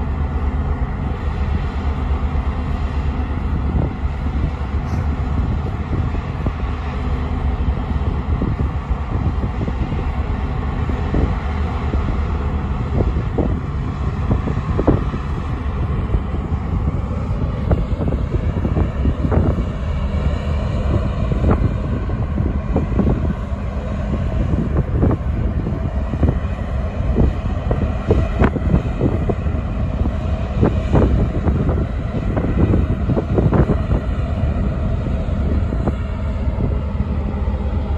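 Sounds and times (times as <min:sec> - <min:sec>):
ferry engines rumbling: 0:00.0 - 0:37.9.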